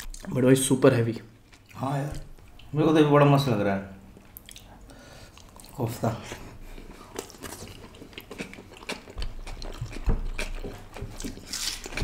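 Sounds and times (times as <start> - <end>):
chewing and mouth sounds: 1.3 - 2.8, 4.2 - 5.9, 6.6 - 12.0.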